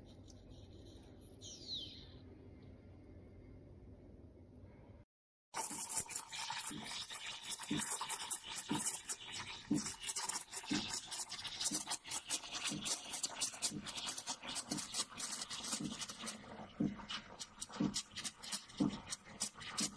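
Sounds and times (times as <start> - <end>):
steam wand frothing milk: 5.6 - 19.9.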